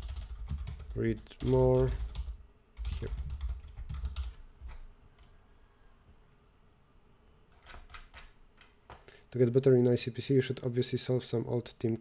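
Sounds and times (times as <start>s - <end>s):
computer keyboard typing: 0.0s - 5.3s, 7.5s - 8.7s.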